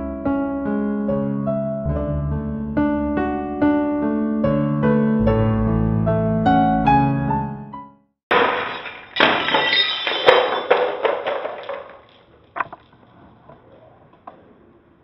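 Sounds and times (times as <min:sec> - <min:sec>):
glass shards clinking: 0:08.3 - 0:12.3
glass shattering: 0:08.3 - 0:12.3
frame falling on wooden floor: 0:08.3 - 0:12.8.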